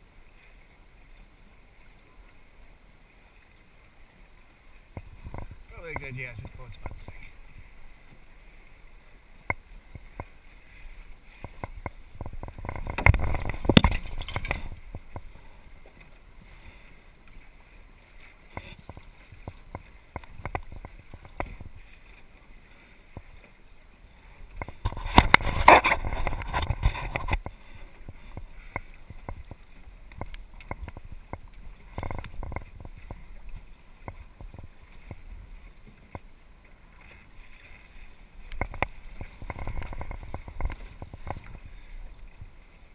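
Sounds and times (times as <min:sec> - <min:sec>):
water slapping against hull: 0:00.2 - 0:42.9
surges of splashing: 0:02.2 - 0:42.9.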